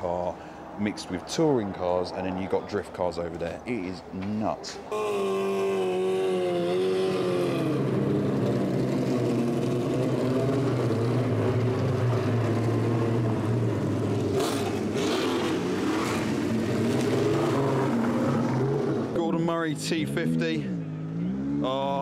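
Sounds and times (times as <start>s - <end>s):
race car engines at low speed: 0.0s - 22.0s
engine crackling bursts: 6.5s - 19.2s.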